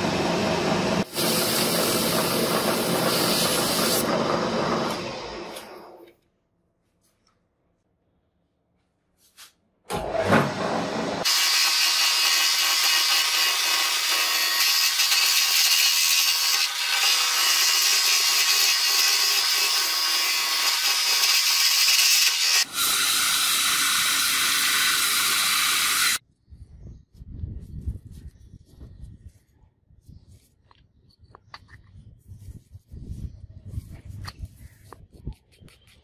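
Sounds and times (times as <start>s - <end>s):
lathe cutting wood: 0.0s - 6.0s, 9.9s - 26.2s
lathe running: 0.0s - 6.0s.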